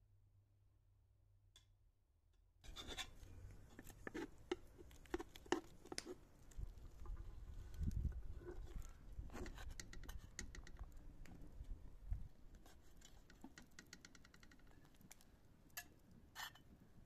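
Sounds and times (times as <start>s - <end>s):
metal spoon scraping steel pot: 2.6s - 3.2s.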